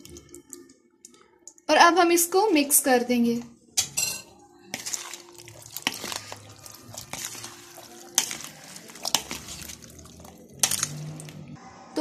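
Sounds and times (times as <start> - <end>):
spoon stirring wet salad: 3.8 - 11.6.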